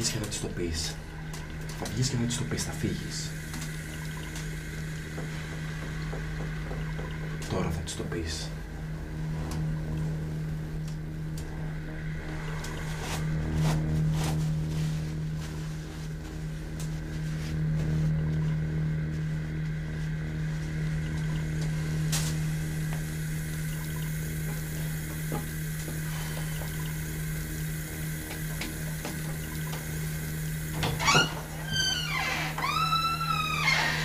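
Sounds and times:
steady low hum: 0.0 - 34.0
tap water running into sink: 1.3 - 7.7, 21.0 - 27.1, 28.2 - 33.2.

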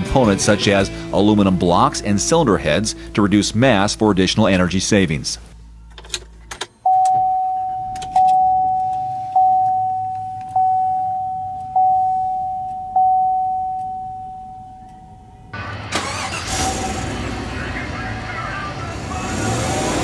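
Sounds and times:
truck engine starting and running: 0.0 - 20.0
dashboard warning chime: 6.8 - 18.0.

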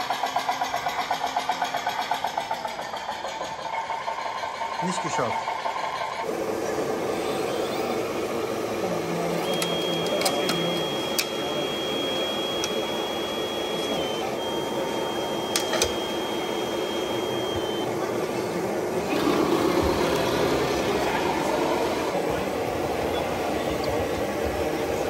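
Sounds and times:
electric motor whining: 6.3 - 24.6.

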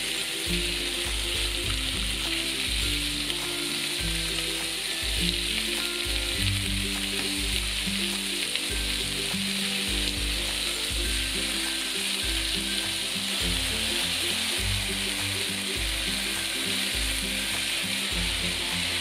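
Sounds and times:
background music with bass: 0.0 - 19.0
fish sizzling in a pan: 0.0 - 19.0.

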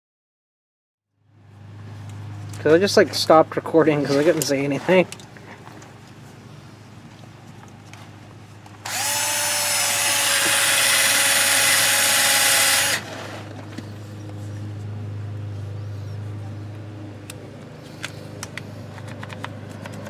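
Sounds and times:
drill wire brush scratching: 8.8 - 13.6.

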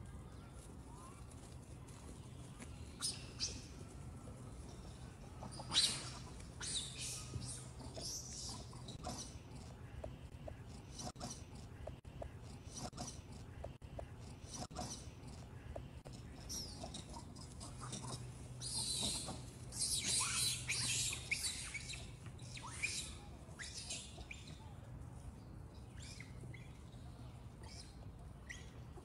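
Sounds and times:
monkeys squealing: 5.5 - 7.2, 16.6 - 21.8.

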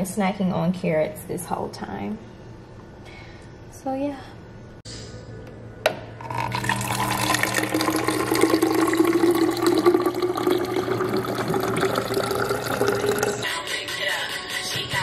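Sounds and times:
water stream filling bottle: 6.2 - 13.4.

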